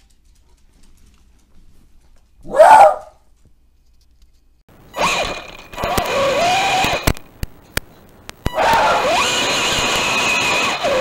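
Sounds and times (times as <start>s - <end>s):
toy tank motors whirring: 5.0s - 7.2s, 8.5s - 11.0s
sharp clicks: 5.0s - 10.2s.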